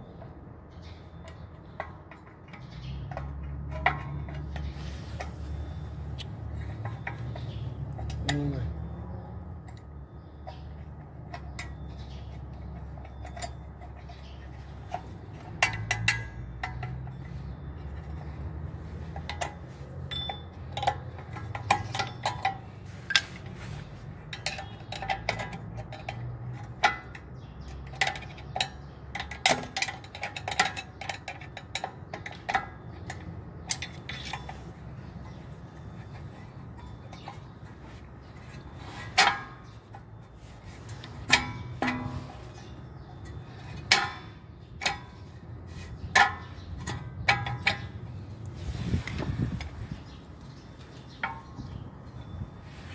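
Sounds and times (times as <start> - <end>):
screwdriver tapping metal hub: 9.6 - 18.2, 19.0 - 23.3, 24.2 - 35.5.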